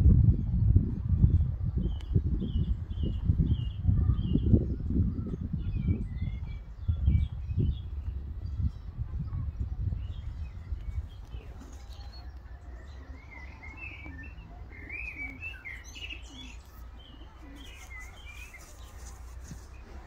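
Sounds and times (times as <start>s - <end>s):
wind rumbling on microphone: 0.0s - 13.0s
small birds chirping: 0.4s - 20.0s
pigeon cooing: 11.4s - 20.0s.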